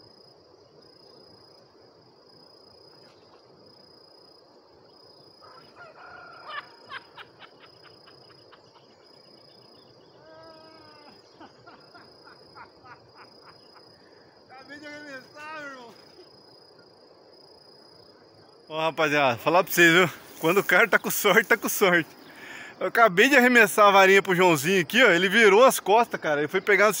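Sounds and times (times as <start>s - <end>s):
high-pitched insect drone: 3.8s - 22.5s
rooster crowing: 5.4s - 7.4s.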